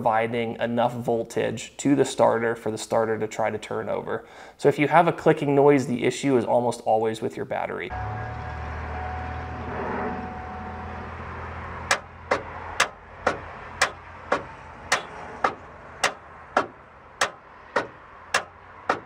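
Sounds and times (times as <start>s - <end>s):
car starter clicking: 11.8s - 19.0s.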